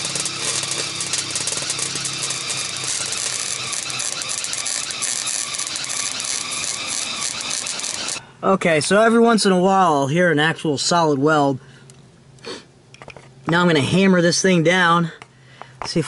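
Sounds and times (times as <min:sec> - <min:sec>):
welder arc crackling: 0:00.0 - 0:08.2.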